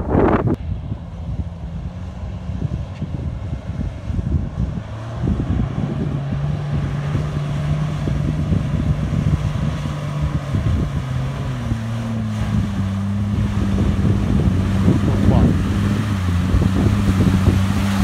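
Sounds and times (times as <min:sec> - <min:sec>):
engine running under load: 0:00.0 - 0:18.0
wind buffeting microphone: 0:00.0 - 0:18.0
water churning: 0:04.4 - 0:18.0.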